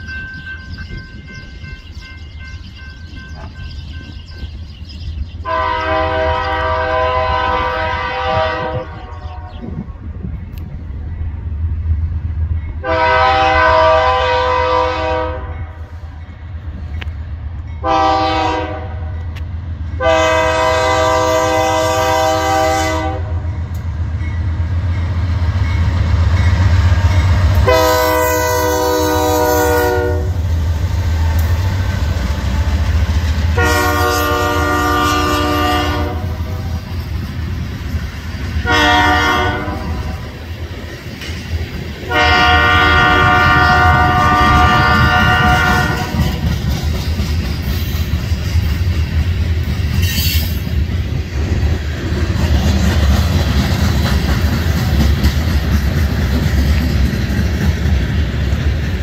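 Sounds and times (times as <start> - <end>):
locomotive air horn blasts: 5.5 - 9.5, 12.8 - 15.8, 17.8 - 19.3, 20.0 - 23.5, 27.6 - 30.4, 33.6 - 36.7, 38.6 - 40.2, 42.1 - 46.4.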